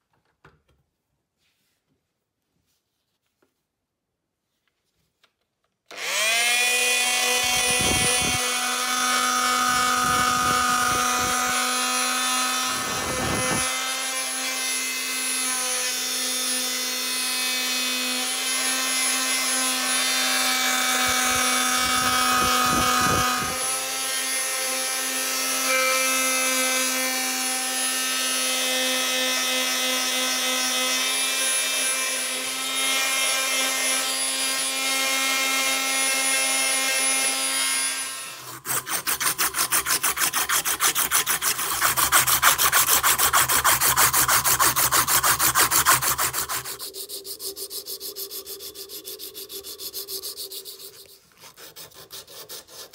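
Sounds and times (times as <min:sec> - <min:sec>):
detail sander motor whine: 0:05.9 - 0:15.2, 0:18.1 - 0:32.0.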